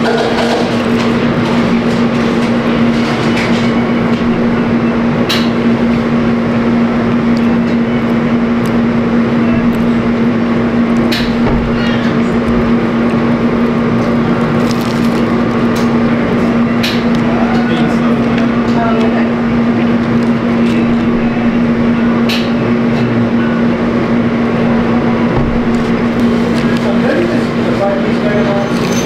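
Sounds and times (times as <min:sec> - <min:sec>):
loud machine hum: 0:00.0 - 0:29.0
crunchy food being chewed: 0:12.1 - 0:19.1.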